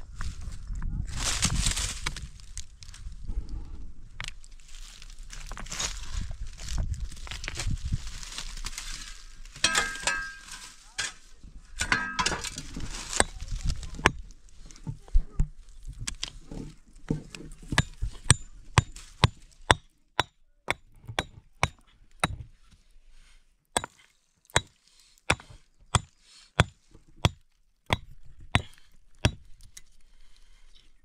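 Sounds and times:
hand tool striking hard material: 9.6s - 11.2s, 11.8s - 15.5s, 17.7s - 22.5s, 23.8s - 29.5s.

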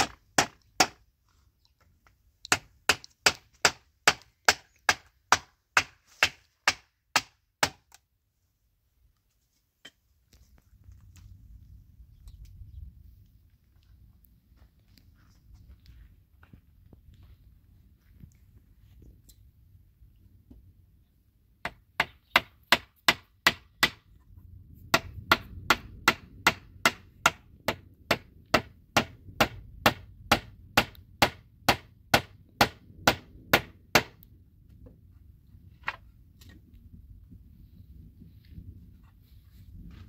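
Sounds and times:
hammer driving nails into wood: 2.5s - 8.0s, 25.0s - 34.2s.

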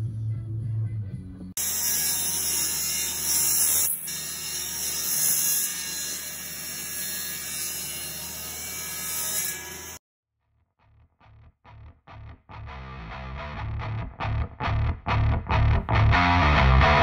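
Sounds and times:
table saw cutting: 1.6s - 10.0s.

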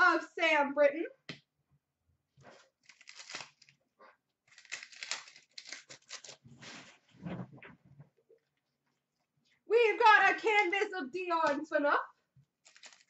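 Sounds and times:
card pack wrapper tearing: 2.8s - 3.8s, 4.4s - 6.4s, 12.6s - 13.0s.

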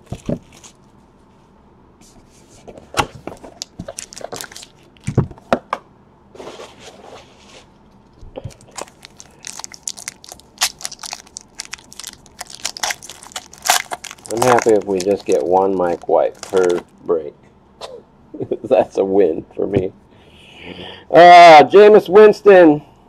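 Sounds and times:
foil wrapper crinkling and tearing: 3.4s - 5.2s, 8.5s - 17.0s.

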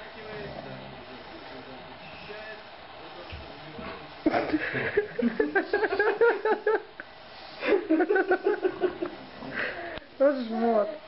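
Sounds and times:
person laughing: 7.6s - 9.7s.

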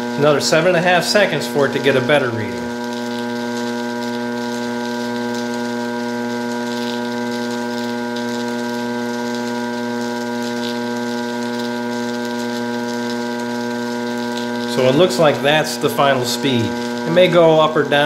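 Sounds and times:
lathe motor humming: 0.0s - 4.8s, 11.8s - 18.0s.

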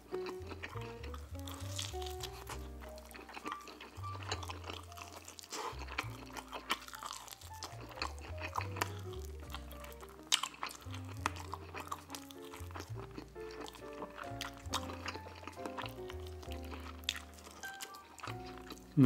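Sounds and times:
background music with bass line: 0.0s - 3.4s
chewing and biting: 0.0s - 19.0s
wet crunches and mouth clicks: 0.0s - 19.0s.

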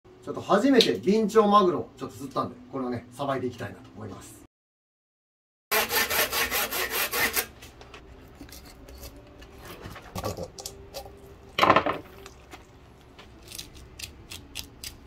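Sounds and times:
cutting on wooden board: 5.7s - 7.6s
knife scraping fish skin: 8.4s - 10.7s, 13.4s - 15.0s.

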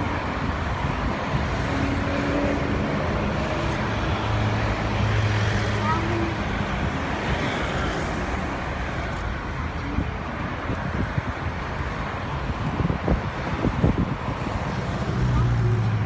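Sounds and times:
wind rumbling on microphone: 0.0s - 4.0s, 8.1s - 16.0s
cars driving past: 0.0s - 16.0s.

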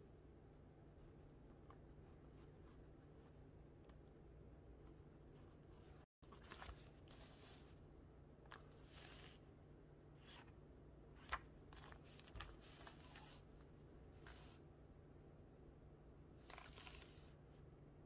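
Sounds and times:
paper booklet rustling: 5.7s - 7.8s, 8.5s - 9.5s, 10.2s - 14.6s, 16.4s - 17.4s.

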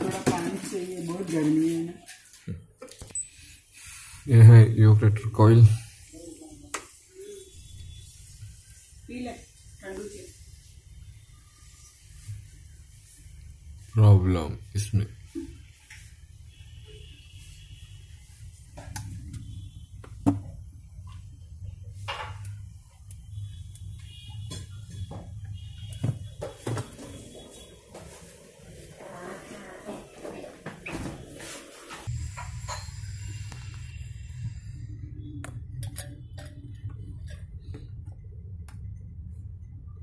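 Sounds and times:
low steady hum: 32.1s - 40.0s.

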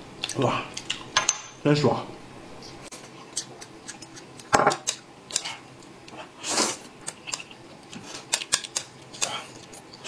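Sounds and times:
chopsticks clicking against bowls: 3.3s - 6.2s, 7.0s - 9.7s.

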